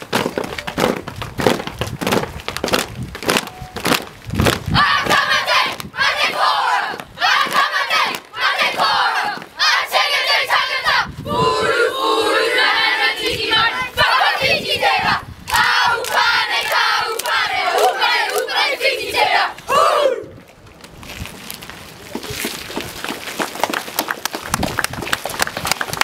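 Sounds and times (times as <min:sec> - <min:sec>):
children chanting and shouting: 0:04.7 - 0:20.3.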